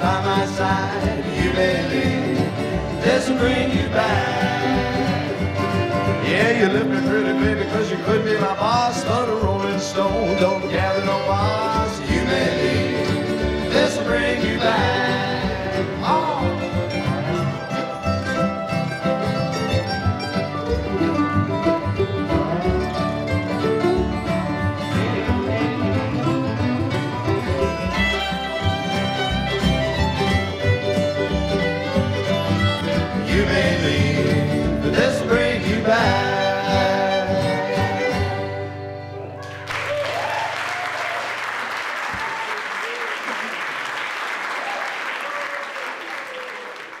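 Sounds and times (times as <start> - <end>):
string band playing: 0.0 - 40.4
audience applause: 39.4 - 47.0.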